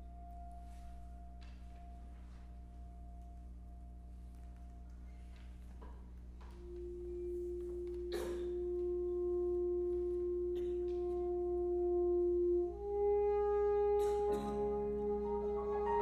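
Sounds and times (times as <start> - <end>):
steady low hum: 0.0 - 16.0
saxophone holding long note: 6.4 - 16.0.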